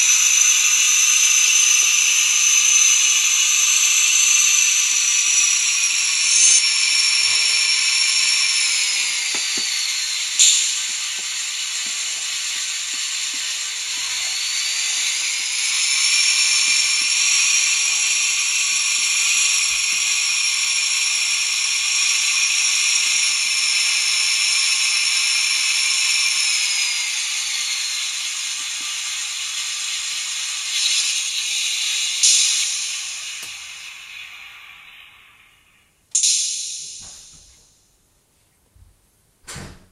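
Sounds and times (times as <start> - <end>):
thin hissy diesel engine sound: 0.0 - 37.3.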